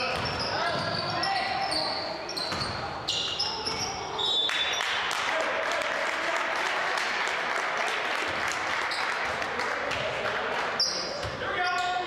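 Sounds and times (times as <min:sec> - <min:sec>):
spectators applauding: 0:04.5 - 0:10.7.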